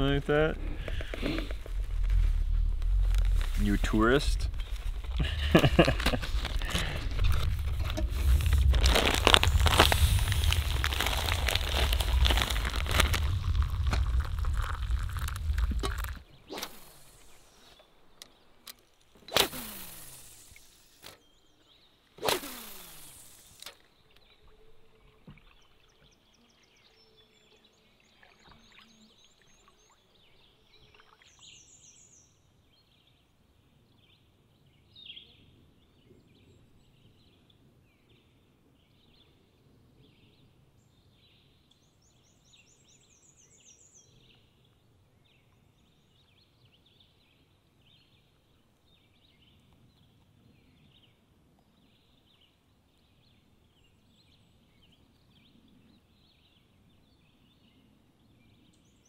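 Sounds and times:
fishing rod cast swish: 0:16.4 - 0:17.7, 0:19.2 - 0:21.2, 0:22.2 - 0:23.8.

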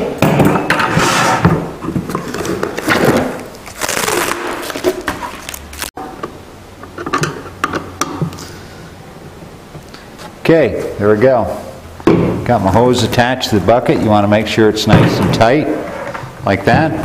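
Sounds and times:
hose scraping on plastic bucket: 0:00.8 - 0:01.5
foil hose crinkling: 0:03.2 - 0:05.9.

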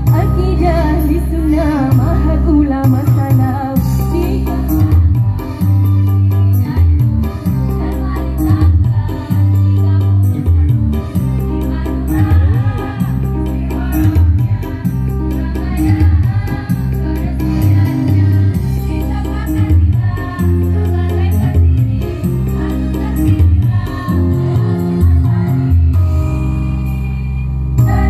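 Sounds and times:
steady bass notes: 0:00.0 - 0:28.0
girls' choir singing: 0:11.6 - 0:25.6.

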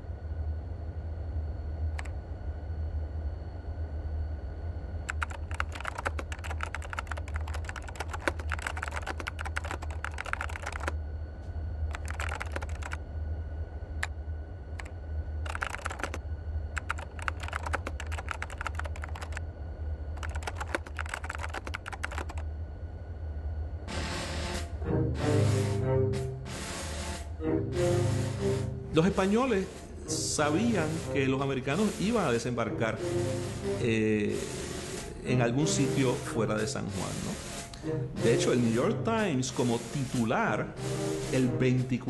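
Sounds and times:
steady low hum: 0:00.0 - 0:42.0
rapid typing on a keyboard: 0:05.1 - 0:11.0, 0:11.9 - 0:13.0, 0:14.8 - 0:16.2, 0:16.8 - 0:19.4, 0:20.2 - 0:22.4.

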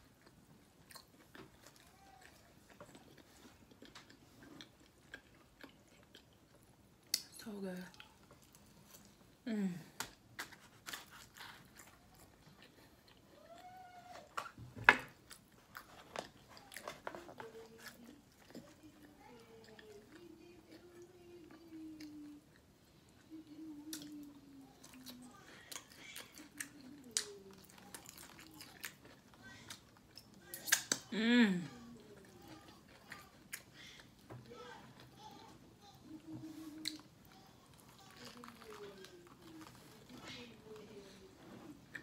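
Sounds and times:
chewing and wet mouth clicks: 0:02.7 - 0:07.3.

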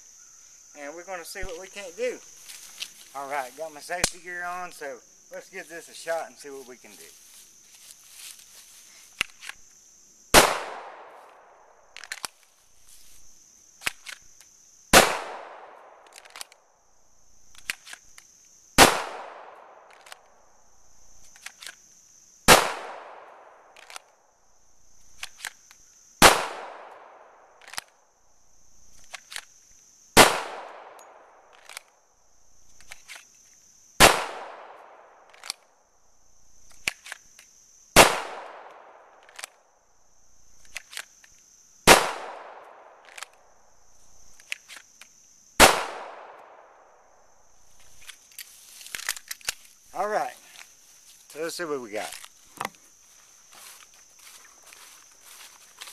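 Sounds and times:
pistol shots with echo: 0:10.4 - 0:11.1, 0:34.0 - 0:34.8, 0:41.9 - 0:42.7, 0:45.6 - 0:46.6
pistol holster clicks and knocks: 0:47.9 - 0:49.7, 0:52.1 - 0:52.8.

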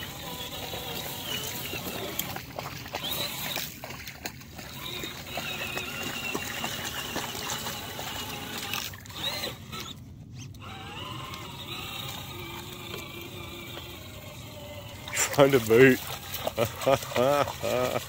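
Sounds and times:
small electric motor whining: 0:00.0 - 0:03.8, 0:04.7 - 0:18.0
water splashing and trickling: 0:00.0 - 0:18.0
patters and clicks on gravel: 0:15.0 - 0:18.0.

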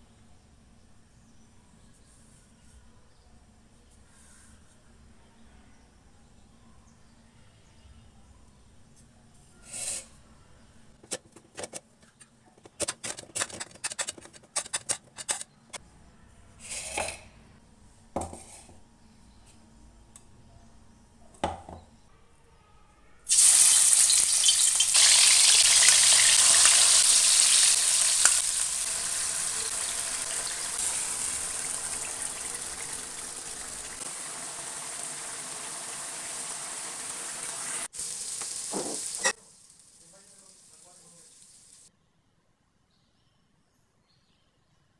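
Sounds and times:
fish frying in hot oil: 0:23.3 - 0:41.9.

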